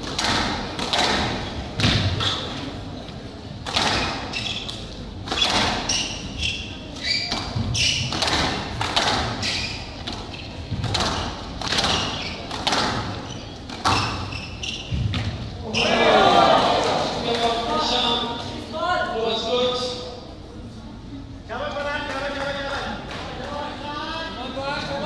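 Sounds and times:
squash ball hitting rackets: 0.0 - 2.6, 3.6 - 6.3, 6.9 - 15.5
shoes squeaking on wooden floor: 4.0 - 16.0.

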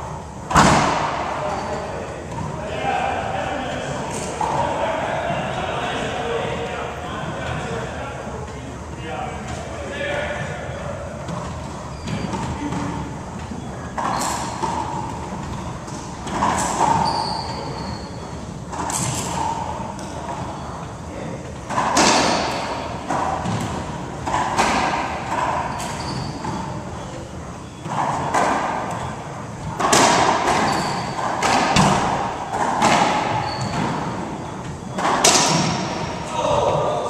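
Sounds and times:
ball smacking racquets and walls: 0.4 - 2.6, 11.2 - 20.6, 21.4 - 36.8
short high squeaks: 1.4 - 2.0, 11.8 - 12.7, 13.5 - 19.7, 25.3 - 29.4, 30.4 - 31.4, 32.2 - 35.2.

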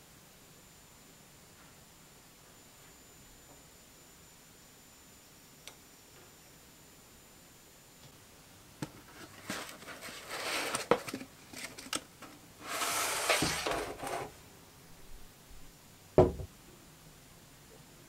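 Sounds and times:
foam and cardboard rustling: 9.0 - 12.0, 12.6 - 14.3
metal object thud on hard surface: 16.2 - 16.5.

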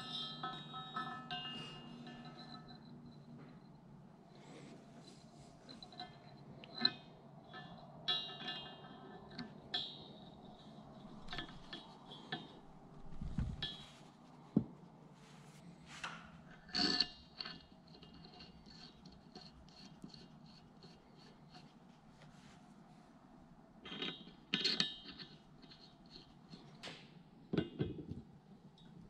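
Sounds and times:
metal clinks and taps: 0.0 - 3.7, 5.7 - 14.0.

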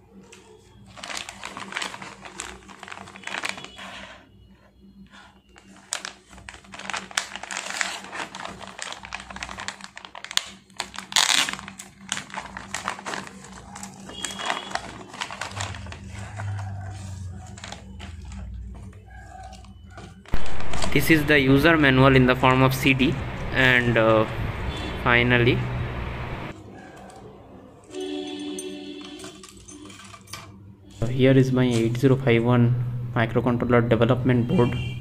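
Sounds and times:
plastic packaging crinkling: 0.2 - 23.3.

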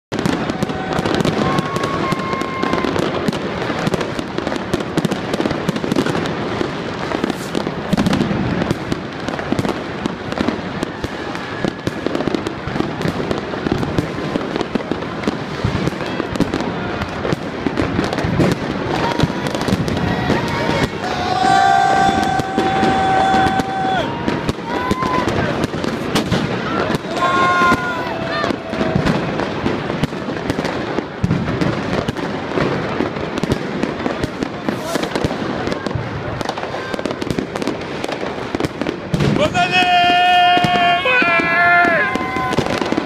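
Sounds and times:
fireworks and firecrackers banging: 0.1 - 43.0
rockets bursting overhead: 0.1 - 43.0.

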